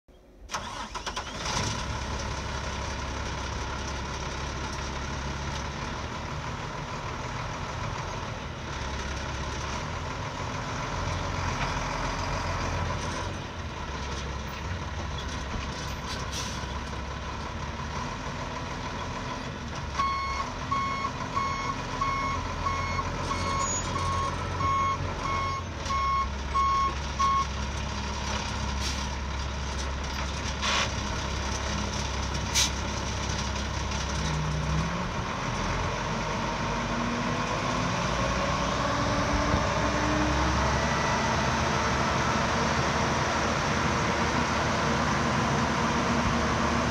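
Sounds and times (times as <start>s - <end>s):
reversing alarm beeping: 20.0s - 27.5s.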